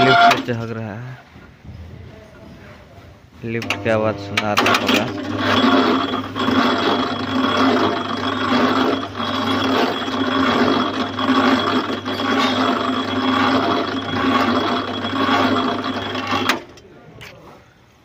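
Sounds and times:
hoist mechanical drone: 0.0 - 0.6, 3.6 - 16.9.

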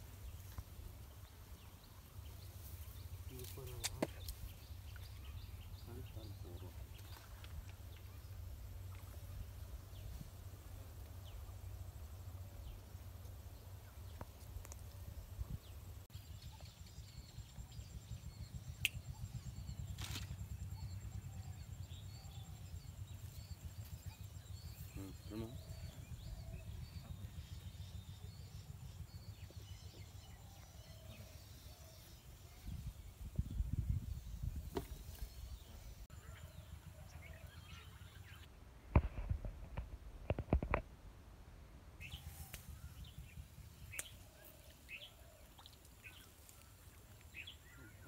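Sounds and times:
brief rustle: 20.0 - 20.4.

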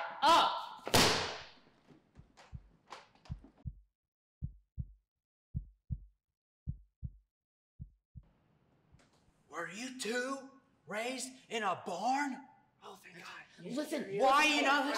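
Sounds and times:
heartbeat thumps: 2.2 - 8.3.

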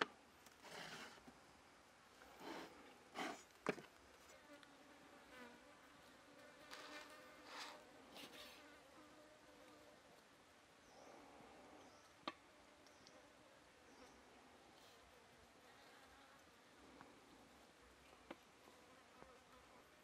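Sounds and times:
rustling: 5.9 - 8.8.

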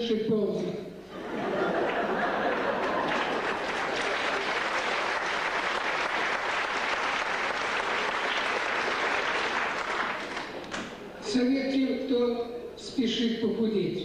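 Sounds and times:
audience applauding: 1.4 - 11.0.

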